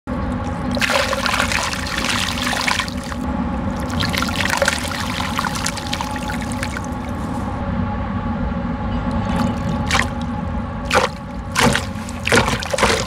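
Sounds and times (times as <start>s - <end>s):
dirt poured into water: 0.5s - 3.2s, 3.8s - 7.4s, 9.4s - 10.2s, 10.9s - 13.0s.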